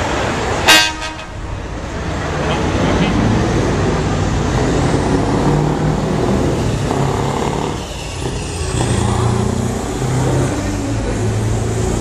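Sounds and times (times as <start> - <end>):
truck driving past: 0.0 - 12.0.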